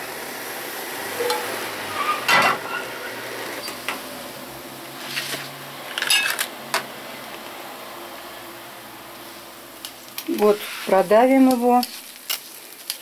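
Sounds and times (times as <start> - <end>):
metal pan knocking and scraping: 1.2 - 1.5.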